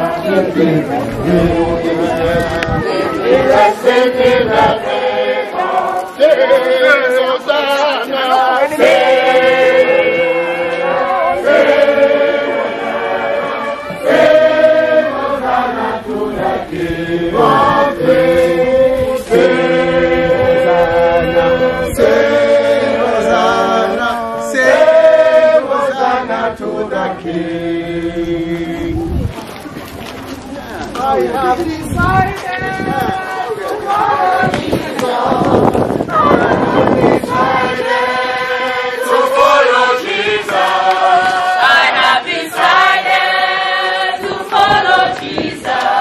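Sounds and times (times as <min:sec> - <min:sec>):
group singing a hymn: 0:00.0 - 0:29.2, 0:31.0 - 0:46.0.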